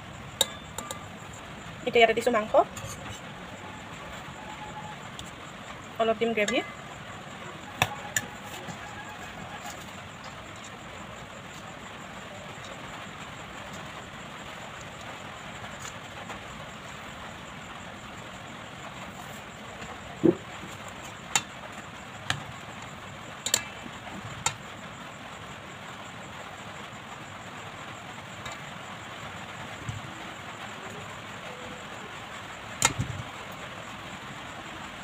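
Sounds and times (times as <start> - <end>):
steady background hiss: 0.0 - 35.0
metal spoon clinking against pot: 0.4 - 1.1.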